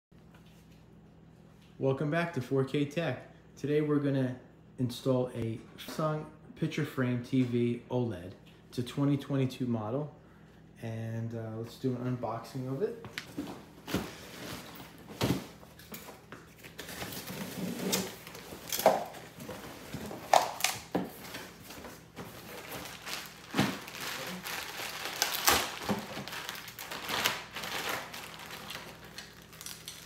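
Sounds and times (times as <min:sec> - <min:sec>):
plastic wrapping rustling: 0:13.3 - 0:30.0.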